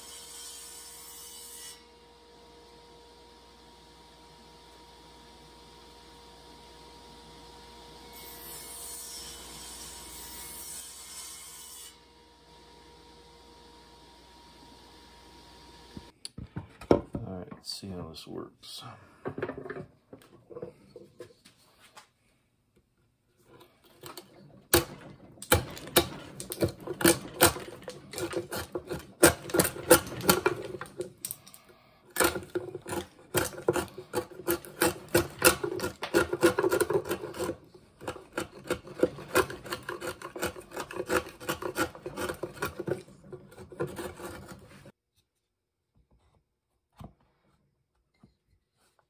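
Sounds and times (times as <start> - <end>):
chisel paring wood: 24.0 - 31.4, 32.1 - 44.9.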